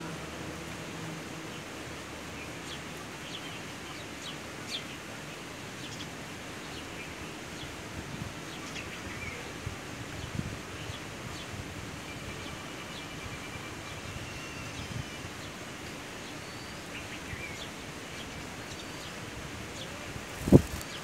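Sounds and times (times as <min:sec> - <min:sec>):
steady background hiss: 0:00.0 - 0:21.0
sparrows chirping: 0:19.8 - 0:21.0.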